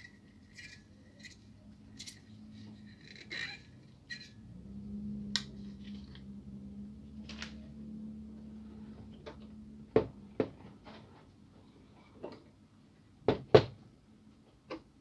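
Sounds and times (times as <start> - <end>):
light scrapes and rustles: 0.0 - 4.4
faint low hum: 0.0 - 13.2.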